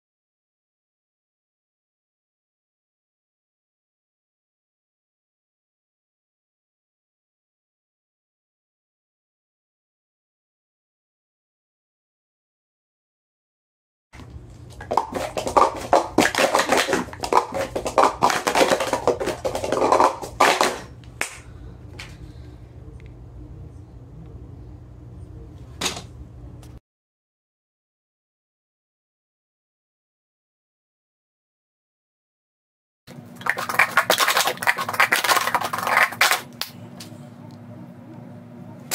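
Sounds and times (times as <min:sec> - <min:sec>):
plastic cups clattering when stacked: 0:14.7 - 0:21.4, 0:33.4 - 0:36.5.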